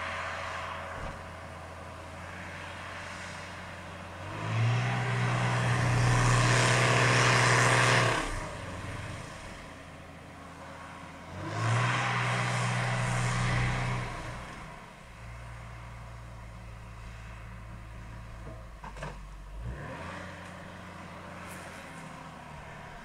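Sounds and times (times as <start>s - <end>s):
harvester engine revving: 4.1s - 9.8s, 10.6s - 14.9s.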